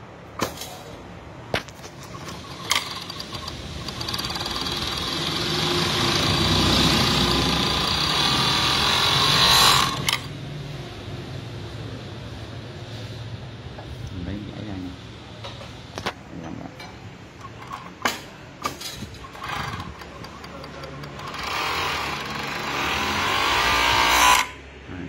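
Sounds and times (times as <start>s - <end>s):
sewing machine stitching: 2.0s - 10.3s, 19.2s - 24.5s.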